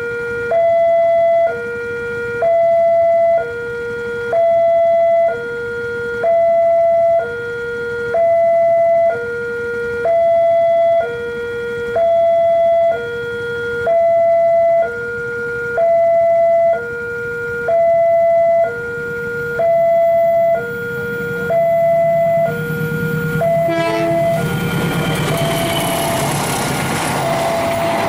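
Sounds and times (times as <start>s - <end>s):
two-tone level crossing siren: 0.0s - 26.6s, 27.2s - 28.0s
train rumble: 21.0s - 28.0s.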